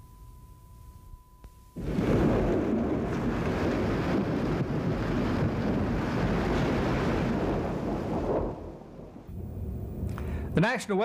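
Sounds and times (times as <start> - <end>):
deep rumble: 1.8 - 10.6
storm wind roaring: 1.8 - 10.6.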